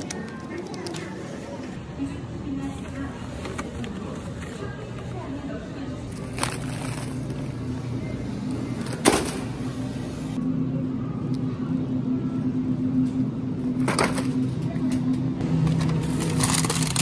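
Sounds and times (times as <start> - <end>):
low hum: 5.8 - 17.0.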